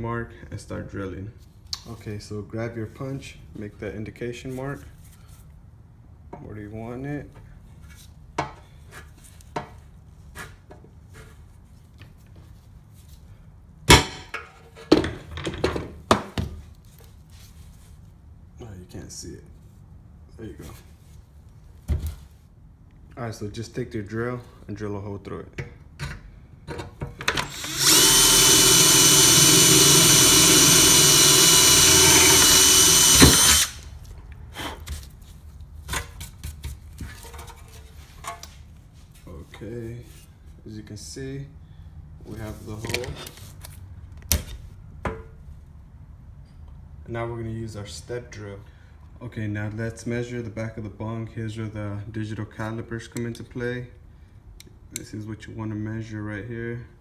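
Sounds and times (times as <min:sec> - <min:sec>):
power drill boring through steel: 0:27.4 - 0:33.8.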